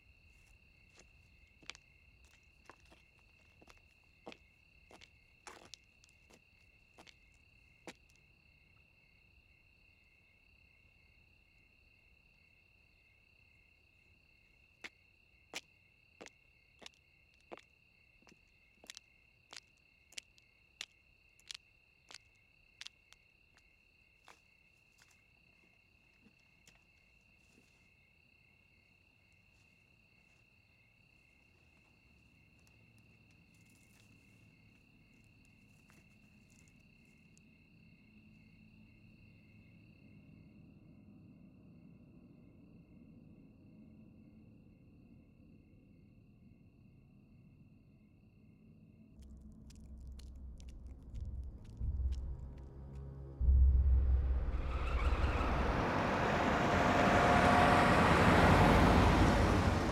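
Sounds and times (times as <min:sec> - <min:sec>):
crickets chirring: 0:00.0 - 0:46.2, 0:46.8 - 0:59.9
footsteps crunching on dry ground: 0:00.2 - 0:08.2, 0:16.2 - 0:25.3
low rumble: 0:49.2 - 0:57.9.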